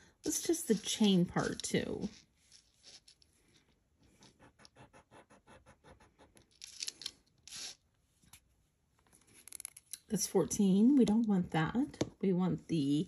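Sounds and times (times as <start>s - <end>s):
chain scratching on stone: 0.4s - 3.5s, 6.4s - 7.8s.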